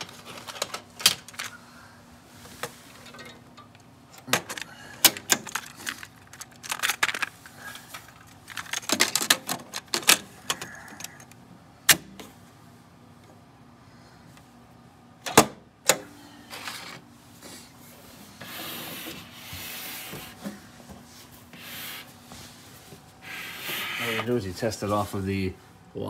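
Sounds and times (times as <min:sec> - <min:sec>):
cassette case plastic clicks and rattles: 0:03.8 - 0:07.3, 0:08.0 - 0:11.4.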